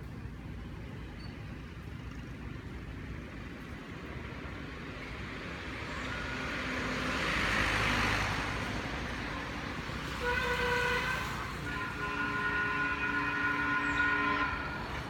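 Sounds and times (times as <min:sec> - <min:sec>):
road vehicle passing by: 0:01.8 - 0:15.0
steady vehicle horn: 0:10.0 - 0:15.0.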